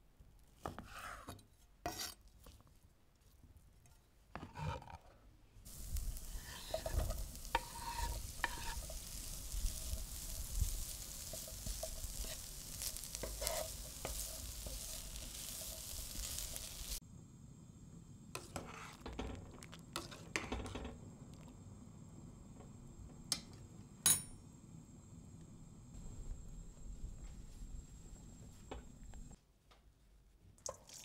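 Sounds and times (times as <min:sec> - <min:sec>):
food sizzling in a frying pan: 0:05.6 - 0:17.0
sharp light clink: 0:24.0 - 0:24.4.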